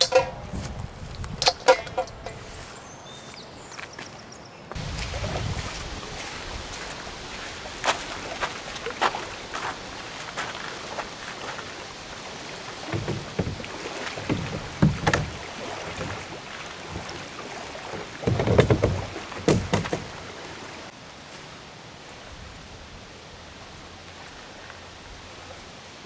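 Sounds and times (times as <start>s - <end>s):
plastic kayak scraping and thumping: 4.8s - 7.0s, 12.6s - 20.3s.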